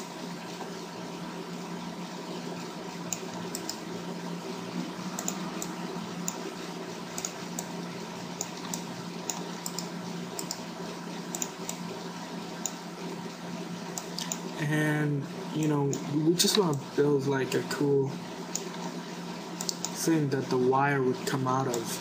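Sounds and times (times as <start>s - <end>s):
electrical hum and hiss: 0.0s - 22.0s
mouse and keyboard clicks: 5.2s - 6.4s, 14.0s - 14.4s.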